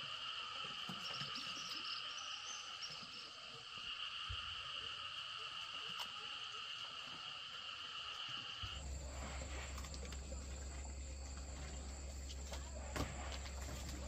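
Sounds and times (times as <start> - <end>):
insects trilling: 0.0 - 14.0.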